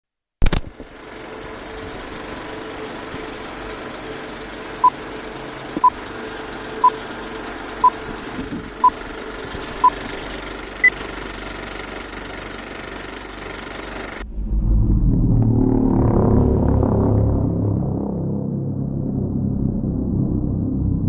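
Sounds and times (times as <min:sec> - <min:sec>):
film projector clattering: 0:00.4 - 0:14.2.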